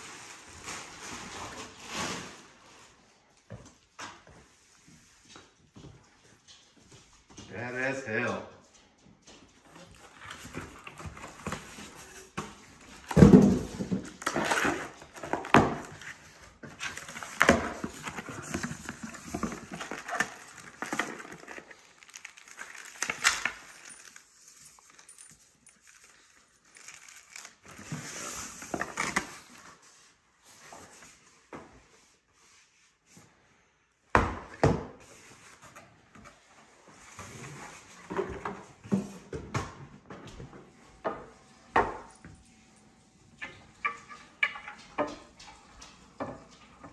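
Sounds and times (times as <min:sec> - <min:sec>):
cardboard rustling and scraping: 0:09.7 - 0:33.3.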